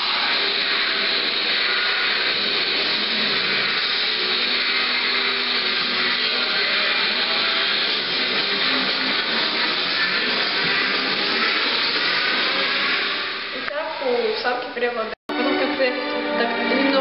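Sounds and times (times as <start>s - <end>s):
loud music over loudspeakers: 0.0s - 13.7s, 15.3s - 17.0s.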